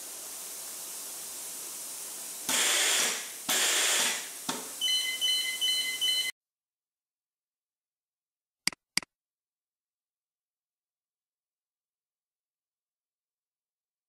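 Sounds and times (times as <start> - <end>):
buzzer beeping in quick pulses: 4.8 - 6.3.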